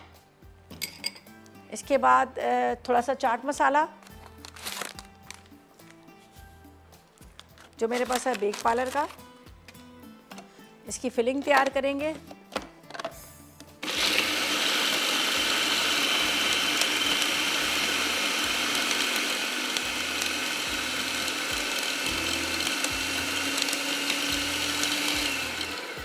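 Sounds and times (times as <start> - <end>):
food processor grinding: 13.8 - 26.0.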